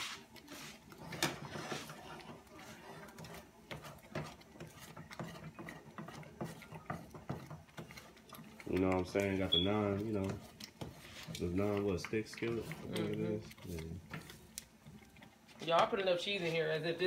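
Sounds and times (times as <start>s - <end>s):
utensil clicking against skillet: 3.0s - 15.4s.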